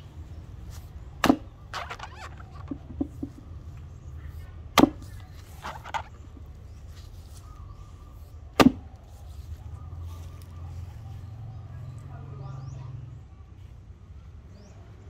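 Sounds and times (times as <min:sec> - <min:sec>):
axe chopping into wood: 0:01.2 - 0:03.4, 0:04.7 - 0:06.2, 0:08.6 - 0:08.9.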